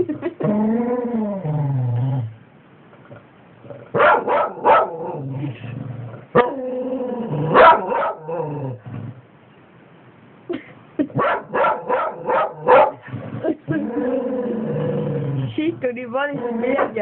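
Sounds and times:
dog growling: 0.4 - 2.4, 12.6 - 17.0
dog barking: 4.0 - 5.0, 7.6 - 8.3, 11.2 - 13.0.

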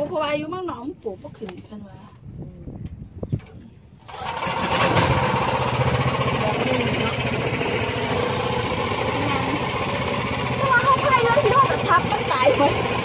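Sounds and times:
wind buffeting microphone: 0.0 - 4.1
small boat engine: 4.0 - 13.0.

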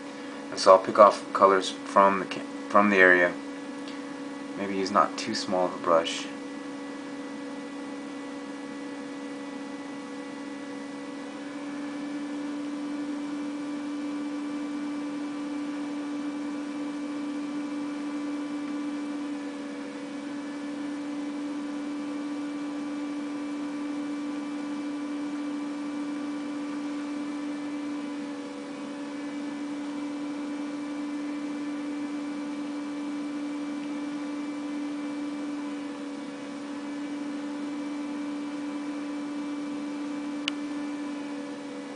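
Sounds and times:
steady electrical hum: 0.0 - 7.5.

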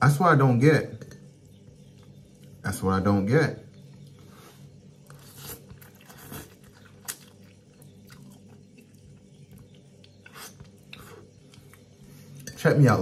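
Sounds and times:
faint steady hum: 0.0 - 13.0
person chewing noodles: 4.0 - 12.5.

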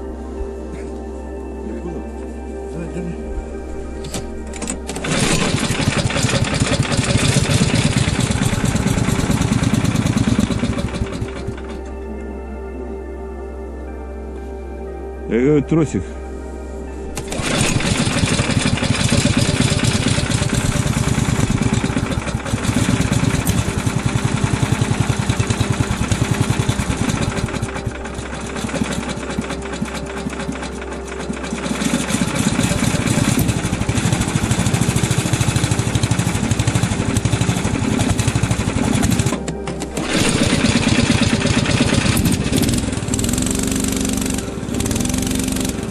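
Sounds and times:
small single-cylinder engine running: 4.1 - 11.8, 17.2 - 45.9.

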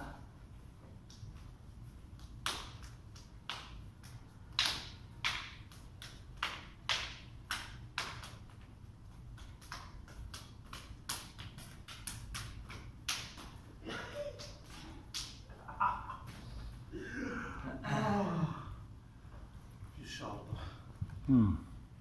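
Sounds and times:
hands slapping: 1.0 - 16.6.

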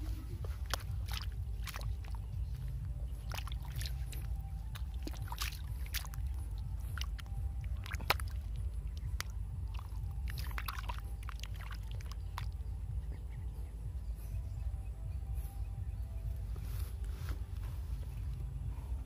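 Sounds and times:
hand sloshing in muddy water: 0.0 - 13.3
small splashes and wet squelches: 0.0 - 14.7
steady low rumble: 0.0 - 19.0.

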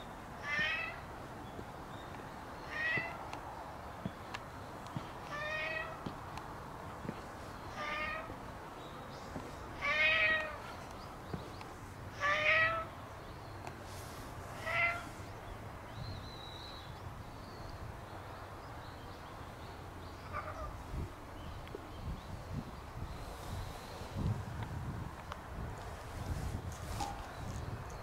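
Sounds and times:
cat meowing: 0.4 - 1.0, 2.7 - 3.2, 5.3 - 6.0, 7.8 - 8.3, 9.8 - 10.6, 12.2 - 12.9, 14.6 - 15.1.

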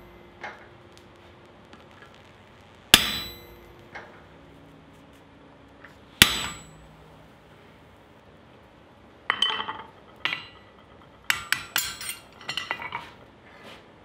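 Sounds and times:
hammer striking hot steel: 2.9 - 4.2, 5.8 - 7.2, 9.3 - 12.9.

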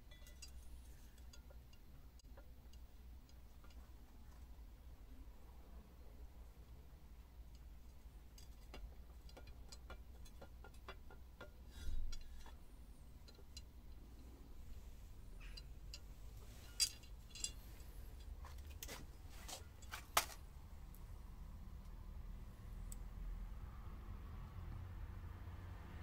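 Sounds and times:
metal parts clicking and clinking: 0.0 - 1.6, 15.4 - 20.4.

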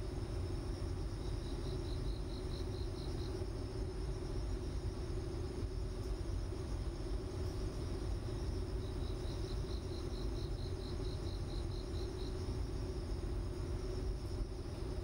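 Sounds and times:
low hum and hiss: 0.0 - 15.0.

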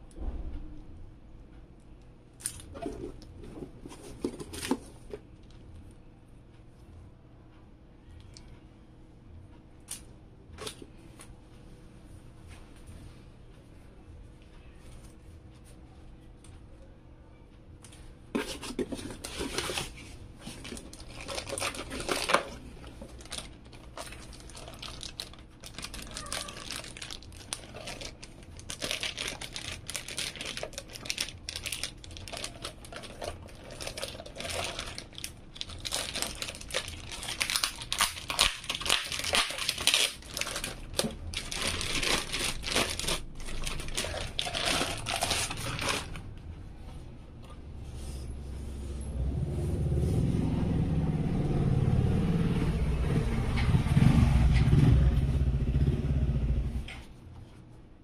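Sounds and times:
cardboard packaging handled: 2.5 - 5.2, 18.3 - 46.3
plastic bag crinkling: 18.4 - 46.3.

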